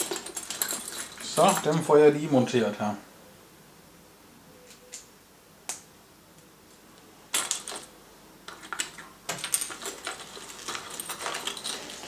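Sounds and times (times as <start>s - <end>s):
metal screws clinking in box: 0.0s - 1.8s, 7.3s - 7.9s, 8.5s - 12.0s.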